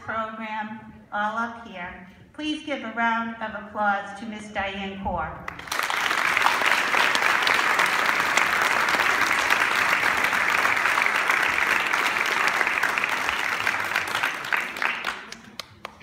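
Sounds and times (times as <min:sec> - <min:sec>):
audience applauding: 0:05.5 - 0:16.0.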